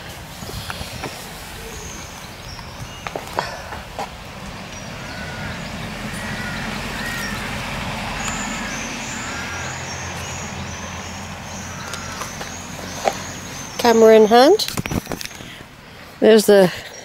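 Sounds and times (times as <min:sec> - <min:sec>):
vehicle engine passing: 0:03.5 - 0:13.9.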